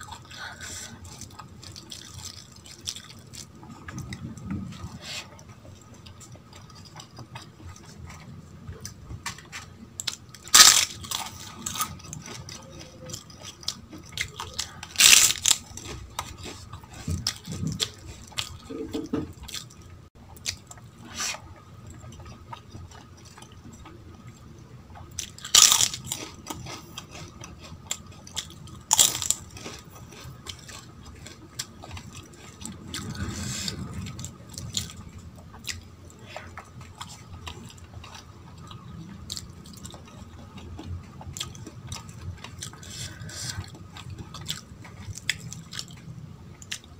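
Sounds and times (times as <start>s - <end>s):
chewing and wet smacking: 0.0s - 46.9s
crunching bites of crisp food: 8.9s - 19.8s, 25.0s - 46.0s.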